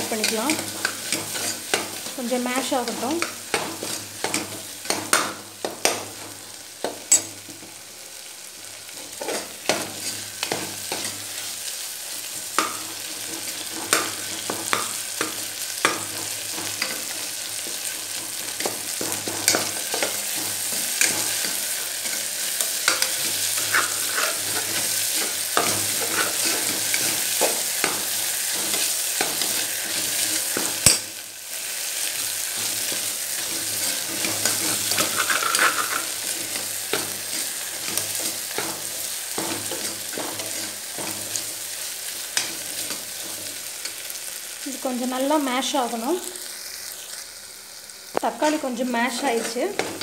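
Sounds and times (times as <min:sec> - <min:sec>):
food sizzling in hot oil: 0:00.0 - 0:50.0
ladle scraping and clinking pot: 0:34.2 - 0:36.2.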